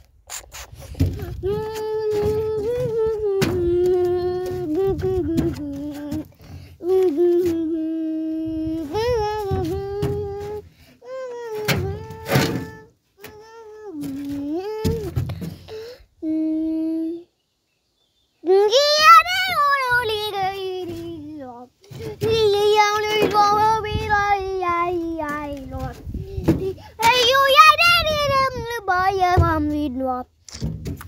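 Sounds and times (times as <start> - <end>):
child humming: 0.3 - 17.3, 18.5 - 27.6.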